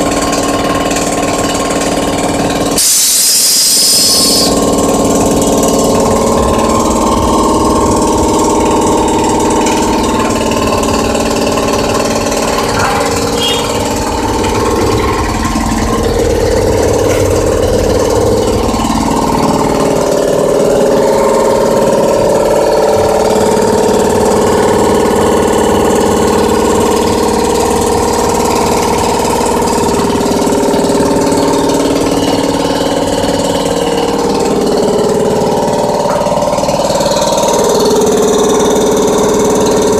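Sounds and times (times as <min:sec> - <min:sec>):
air compressor running: 0:00.0 - 0:39.9.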